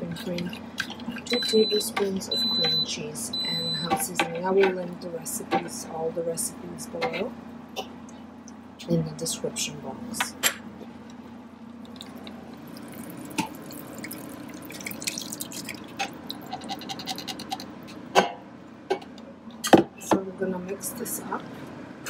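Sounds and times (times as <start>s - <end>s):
sauce pouring and dripping: 11.8s - 17.7s.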